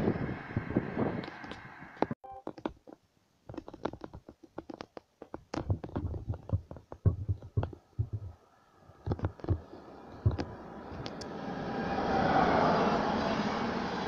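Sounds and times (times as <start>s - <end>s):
microphone handling clicks and scratches: 1.2s - 8.4s, 9.0s - 11.2s
low thumps: 5.3s - 8.4s, 9.1s - 10.6s.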